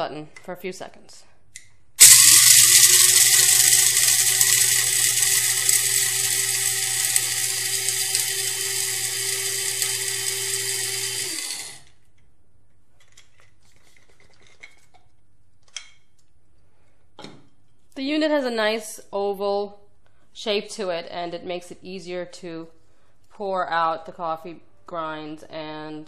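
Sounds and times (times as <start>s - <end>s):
coffee grinder whirring: 2.0s - 12.0s.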